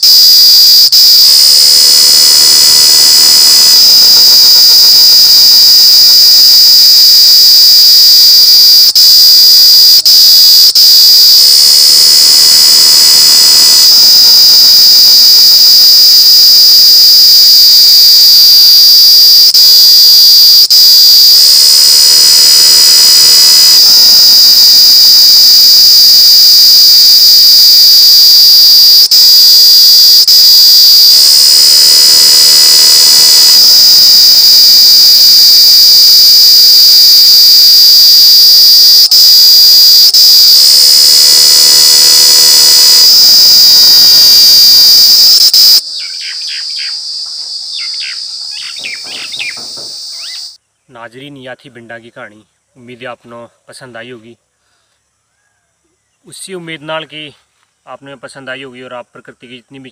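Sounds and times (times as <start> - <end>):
cicada buzzing: 1.0 - 5.7, 11.2 - 27.6, 29.1 - 50.6.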